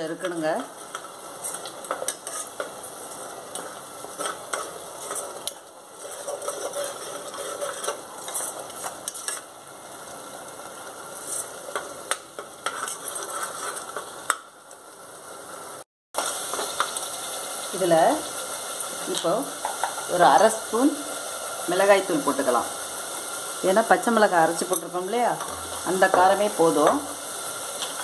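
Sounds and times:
paste sizzling: 0.0s - 14.4s, 16.2s - 28.0s
metal ladle scraping pot: 0.9s - 2.8s, 4.1s - 9.5s, 12.6s - 14.1s.

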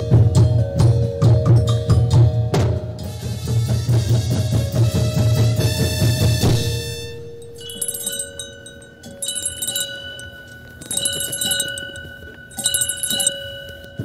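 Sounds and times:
drum hit ringing: 0.0s - 8.8s
small bells shaken: 7.4s - 14.0s.

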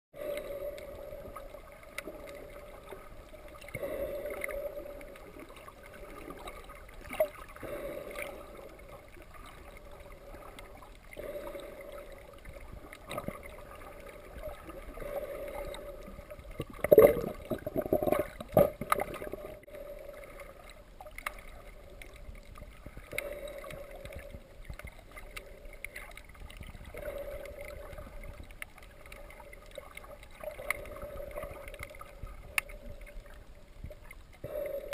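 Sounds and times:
exhaled bubbles gushing: 1.1s - 20.7s
diver breathing through regulator: 3.6s - 6.6s, 7.5s - 9.0s, 10.1s - 12.7s.

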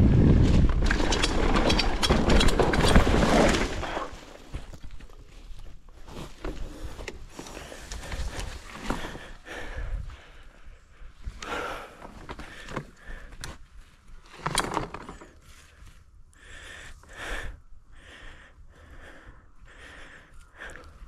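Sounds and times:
bike rattling on dirt trail: 0.0s - 10.4s, 11.3s - 16.0s
rider breathing hard: 3.3s - 14.1s, 15.0s - 21.0s.

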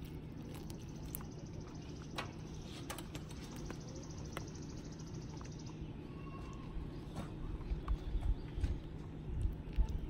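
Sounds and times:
outdoor background noise: 0.0s - 10.0s.

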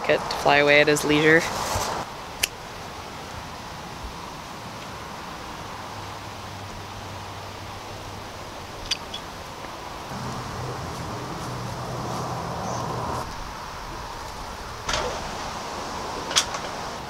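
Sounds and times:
steady hiss: 10.0s - 17.0s
low hum: 10.1s - 14.3s.

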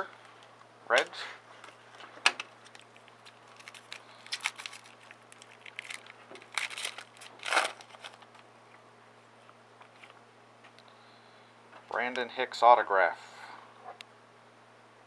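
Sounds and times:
foil wrapper crinkling and tearing: 2.5s - 8.4s.

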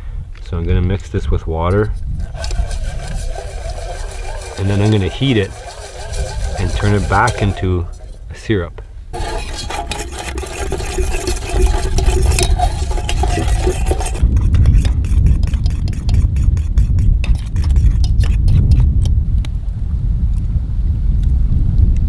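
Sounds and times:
metal fork scraping metal pot: 1.7s - 8.5s, 9.2s - 18.9s.

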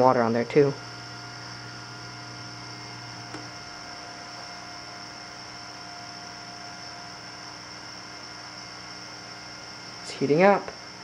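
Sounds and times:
computer electrical hum: 0.0s - 11.0s.

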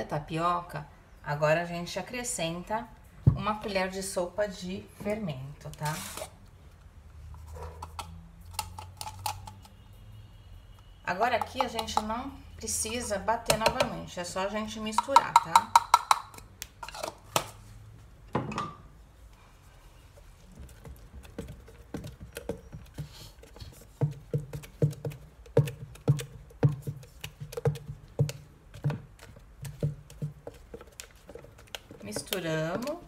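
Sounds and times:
spatula stirring batter in jug: 20.2s - 33.0s.

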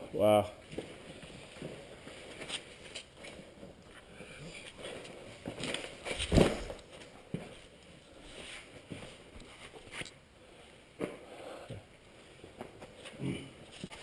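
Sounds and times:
clothing and gear rustling: 0.6s - 11.2s
body thumping against rock: 5.4s - 7.6s.

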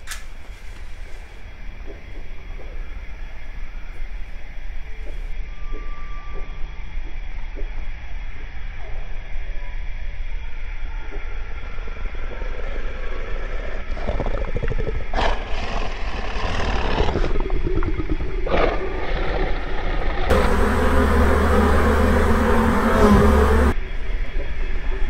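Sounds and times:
loud noisy rumble: 20.3s - 23.8s
low ambient rumble: 20.3s - 25.0s.

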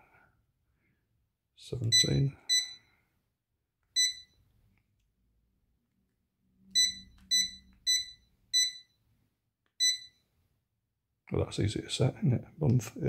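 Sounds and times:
short high electronic beeps: 6.8s - 8.9s.

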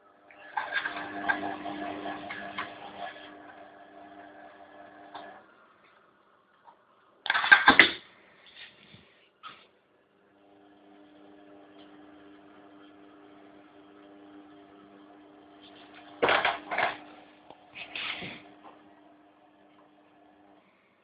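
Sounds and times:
washing machine motor hum: 0.0s - 5.8s, 10.2s - 20.7s.

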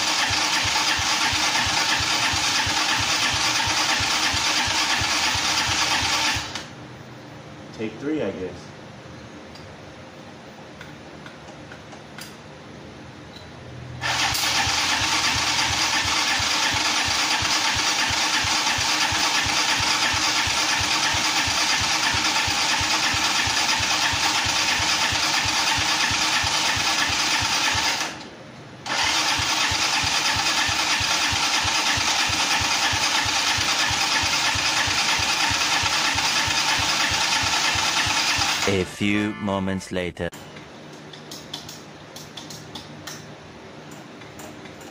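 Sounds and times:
engine starting and running: 0.0s - 6.8s, 13.9s - 38.8s.

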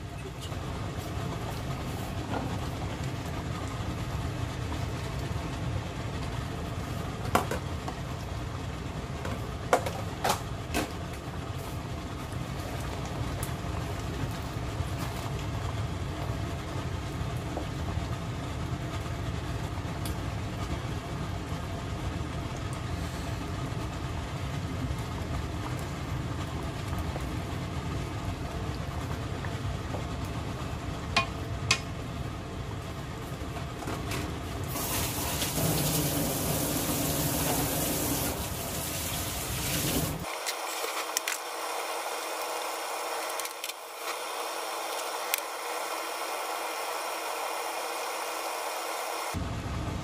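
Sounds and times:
stew bubbling in a pan: 0.0s - 33.8s.

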